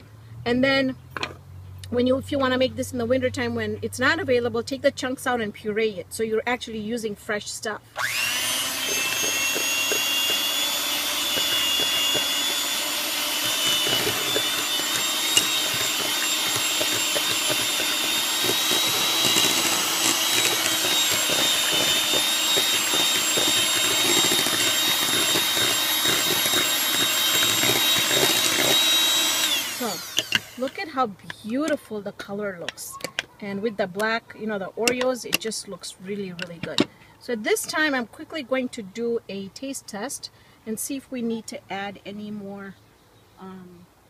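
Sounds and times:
electric hand mixer whining: 0:07.9 - 0:31.8.

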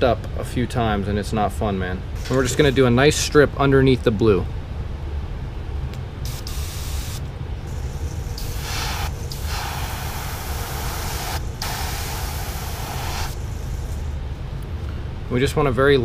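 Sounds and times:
steady low hum: 0:00.0 - 0:16.0
airbrush spraying hiss: 0:06.3 - 0:14.2.

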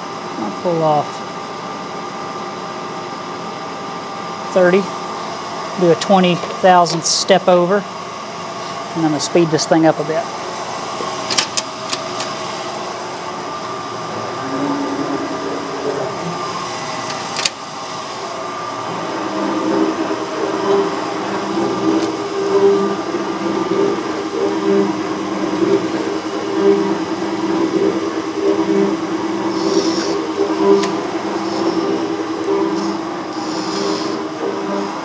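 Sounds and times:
metal shaper ram stroking: 0:19.2 - 0:34.9.

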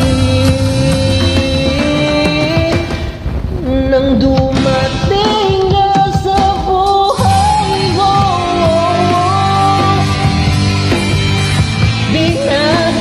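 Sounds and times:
person singing love song: 0:00.0 - 0:10.7, 0:11.9 - 0:13.0
backing track with bass notes: 0:00.0 - 0:13.0.

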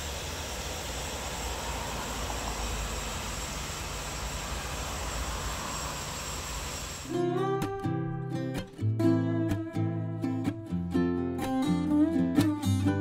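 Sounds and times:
faint high whine: 0:00.0 - 0:07.1.

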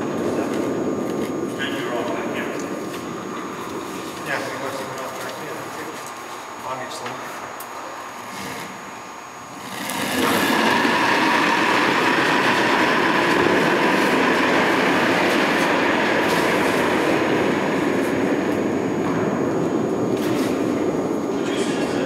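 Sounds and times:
curling stone rumbling on ice: 0:09.6 - 0:13.3.

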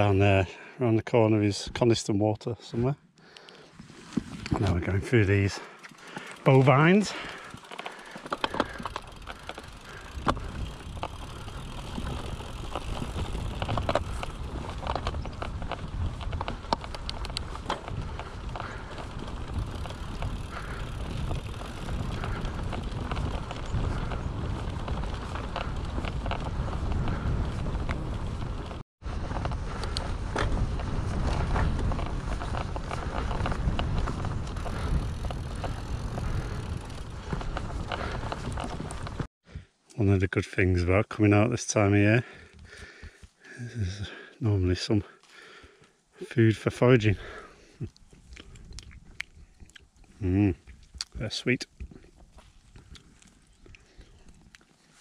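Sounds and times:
tyres rumbling on rough ground: 0:04.2 - 0:39.3
bike knocking and rattling: 0:05.3 - 0:39.3.

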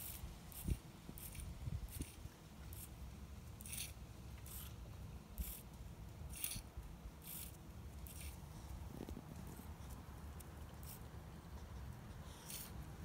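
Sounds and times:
small gear motors whirring: 0:00.0 - 0:03.0, 0:03.6 - 0:04.8, 0:05.4 - 0:05.6, 0:06.3 - 0:08.4.

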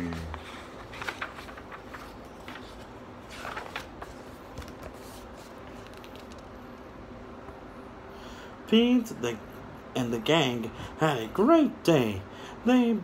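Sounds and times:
paper pages rustling: 0:00.0 - 0:06.6.

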